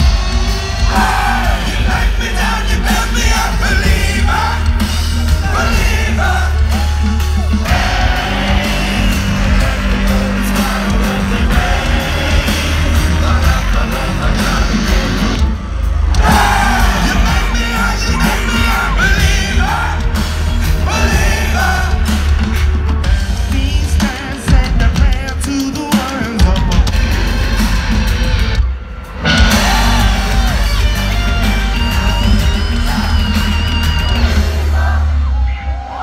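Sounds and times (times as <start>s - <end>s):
crowd yelling and singing along: 0.0s - 36.0s
live amplified music with singing: 0.0s - 36.0s.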